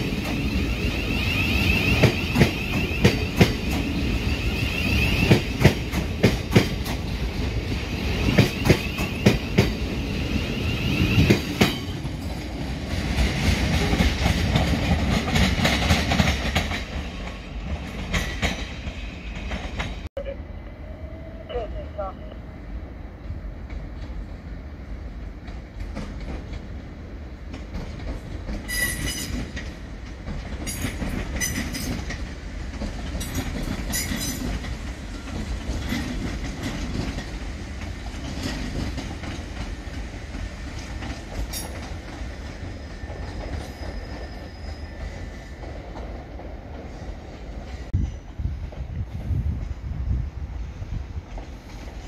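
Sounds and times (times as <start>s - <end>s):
electric train low rumble: 0.0s - 52.0s
high wheel squeal: 42.8s - 45.6s.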